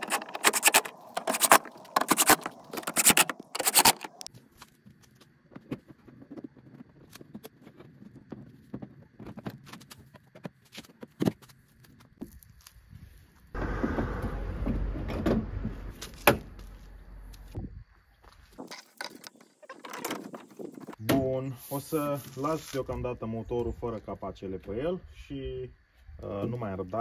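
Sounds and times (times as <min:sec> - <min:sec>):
handling noise: 0:00.0 - 0:04.3
sharp metallic clicks: 0:00.0 - 0:04.3.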